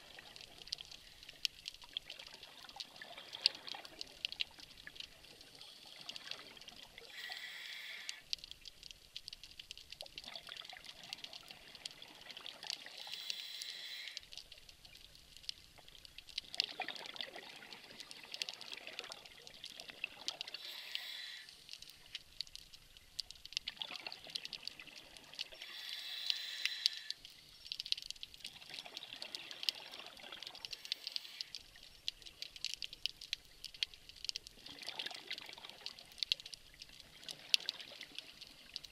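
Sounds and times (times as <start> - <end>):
faint crackle: 0.0 - 38.9
underwater exhaled air bubbling: 34.5 - 36.2.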